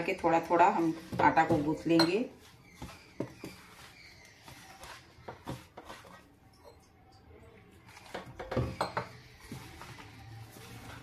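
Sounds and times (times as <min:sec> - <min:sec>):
hand rubbing flour mix in bowl: 0:00.0 - 0:06.5, 0:09.1 - 0:11.0
knocks and scrapes on metal bowl: 0:00.2 - 0:03.8, 0:04.4 - 0:06.8, 0:08.0 - 0:10.0.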